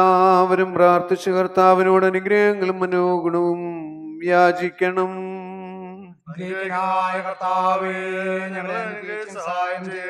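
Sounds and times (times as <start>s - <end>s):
liturgical chant singing: 4.2s - 10.0s.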